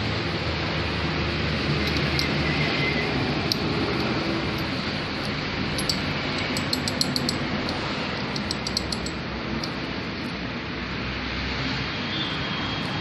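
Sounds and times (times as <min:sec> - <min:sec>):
metallic gear clicks: 0:01.8 - 0:02.4, 0:03.4 - 0:09.8.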